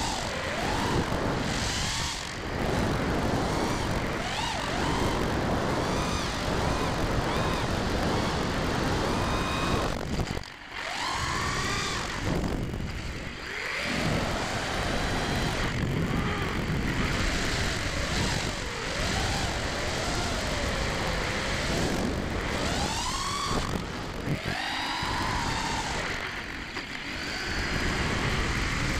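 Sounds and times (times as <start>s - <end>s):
quadcopter motors whining: 0.0s - 28.9s
wind rush: 0.0s - 28.9s.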